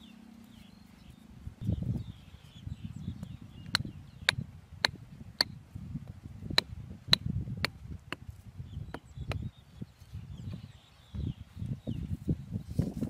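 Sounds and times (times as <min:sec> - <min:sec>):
hatchet chopping bamboo: 0:06.5 - 0:08.4.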